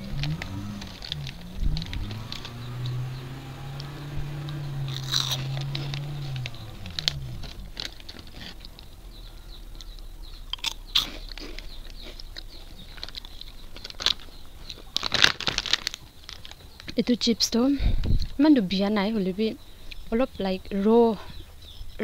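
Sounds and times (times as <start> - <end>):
low hum: 0.0 - 14.8
crunchy food being chewed: 0.0 - 17.0.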